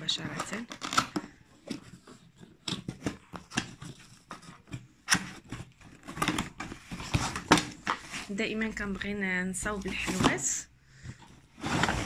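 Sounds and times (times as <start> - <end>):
cardboard box clicks and scrapes: 0.9 - 8.3, 11.4 - 12.0.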